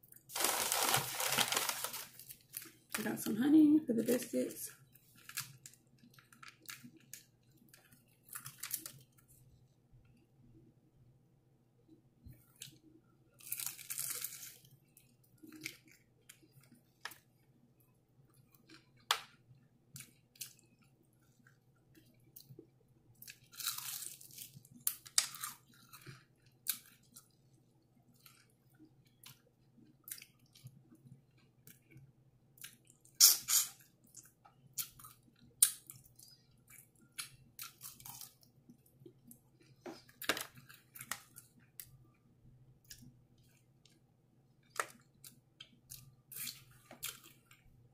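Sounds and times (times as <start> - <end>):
crunching fried chicken: 0.2 - 2.8, 13.4 - 16.7, 23.2 - 27.4.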